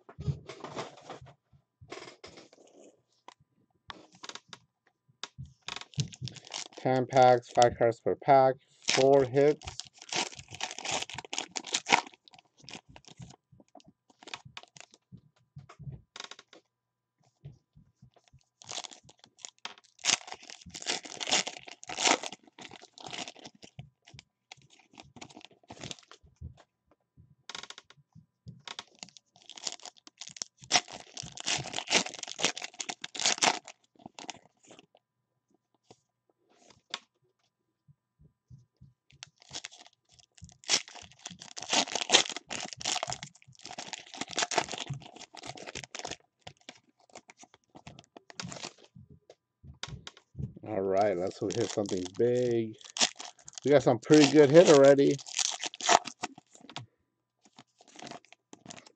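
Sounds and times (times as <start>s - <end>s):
foil wrappers crinkling and tearing: 5.7s - 7.7s, 8.3s - 13.4s, 14.1s - 15.0s, 18.6s - 23.8s, 24.5s - 26.2s, 28.7s - 34.9s, 39.2s - 48.9s, 51.0s - 56.8s, 57.4s - 58.9s.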